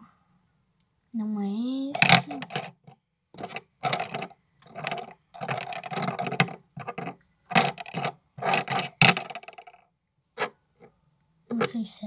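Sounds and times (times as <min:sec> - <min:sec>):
makeup brushes clattering: 0:01.9 - 0:09.8, 0:11.5 - 0:11.8.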